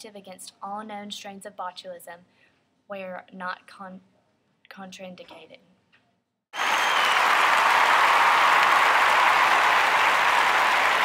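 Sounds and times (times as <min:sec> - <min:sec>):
applause: 0:06.6 - 0:11.0.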